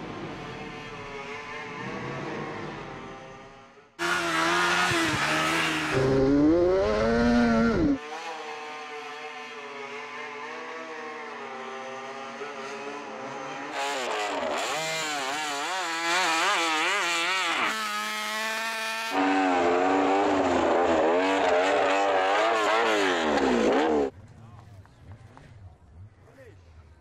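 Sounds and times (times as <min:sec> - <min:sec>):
motorcycle engine revving: 0:00.0 - 0:24.2.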